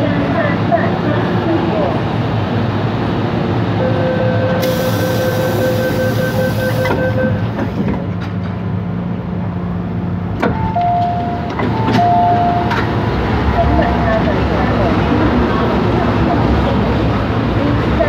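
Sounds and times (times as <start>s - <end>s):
train whine: 0.0s - 18.0s
train wheels rumbling on rail: 4.5s - 18.0s.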